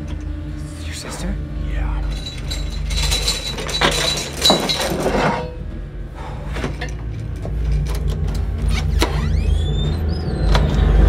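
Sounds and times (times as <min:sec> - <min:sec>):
low steady drone: 0:00.0 - 0:11.0
glass fragments clinking: 0:02.0 - 0:05.6
glass breaking: 0:02.1 - 0:05.4.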